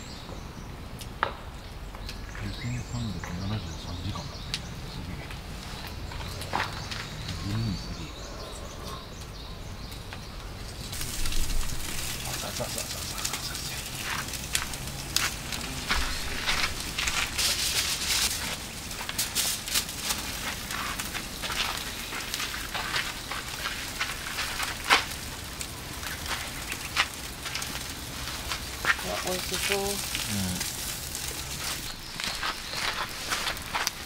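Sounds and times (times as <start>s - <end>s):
wood fire crackling and popping: 1.0s - 8.2s, 9.0s - 34.0s
sausages sizzling: 10.5s - 34.0s.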